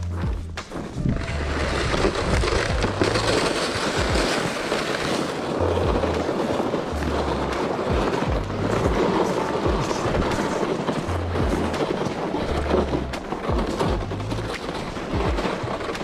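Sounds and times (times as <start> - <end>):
footsteps thumping: 0.0 - 4.7, 7.9 - 16.0
sled scraping over ice: 0.0 - 16.0.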